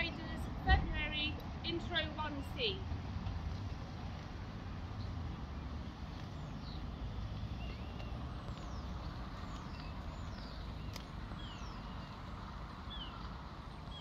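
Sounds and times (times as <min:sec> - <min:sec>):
low outdoor rumble: 0:00.0 - 0:14.0
birds whistling: 0:06.3 - 0:12.2, 0:12.9 - 0:14.0.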